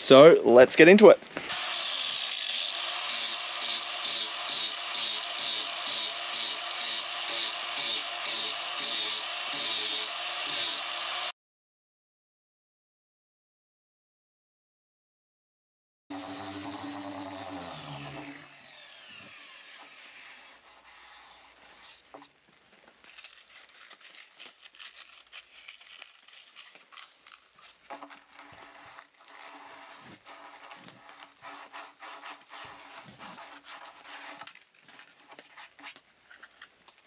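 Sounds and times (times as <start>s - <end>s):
sander spinning down whine: 16.1s - 20.6s
sandpaper scratching by hand: 28.1s - 34.6s.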